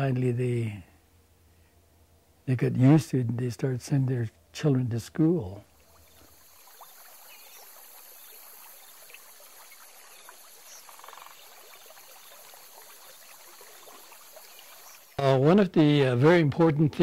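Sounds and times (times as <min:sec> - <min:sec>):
faint trickling stream: 0:04.8 - 0:15.6.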